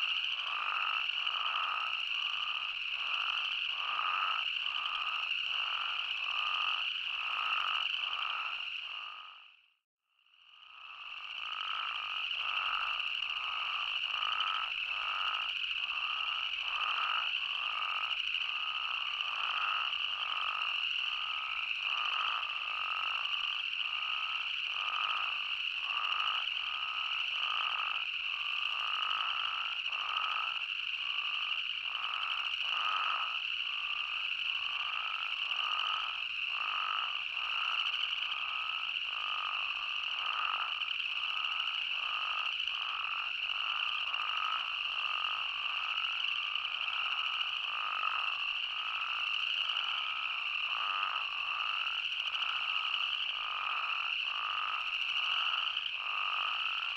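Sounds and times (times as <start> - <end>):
toads calling: 0.0 - 9.4, 10.8 - 56.9.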